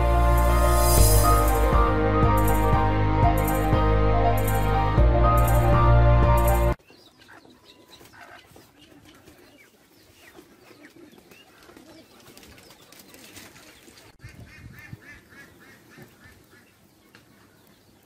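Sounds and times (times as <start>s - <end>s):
chickens and ducks calling: 6.8s - 12.3s, 14.2s - 18.0s.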